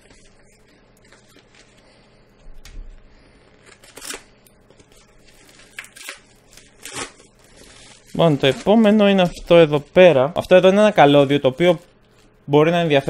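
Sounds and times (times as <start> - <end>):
paper mailer tearing: 3.6 - 10.0.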